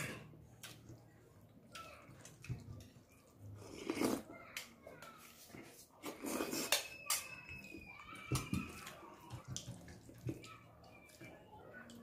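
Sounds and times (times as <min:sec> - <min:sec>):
chewing: 0:01.7 - 0:04.3, 0:08.8 - 0:12.0.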